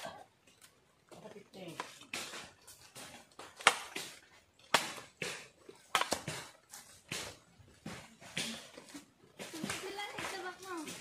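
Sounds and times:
machete chopping wooden pole: 0:01.8 - 0:10.3.

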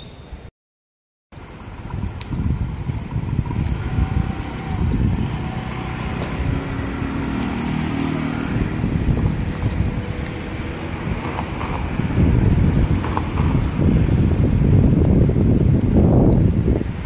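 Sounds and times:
city street traffic: 0:01.4 - 0:17.0
wind buffeting microphone: 0:01.4 - 0:17.0
passing vehicle engine hum: 0:02.8 - 0:15.4.

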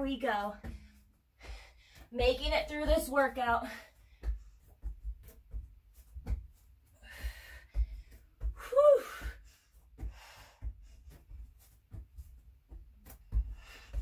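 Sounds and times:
woman breathing hard: 0:00.7 - 0:02.1, 0:06.9 - 0:11.5, 0:13.3 - 0:14.0.

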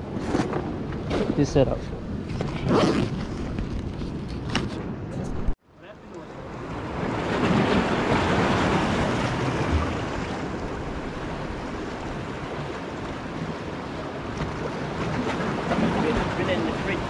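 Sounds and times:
sea waves washing over rocks: 0:06.4 - 0:17.0.

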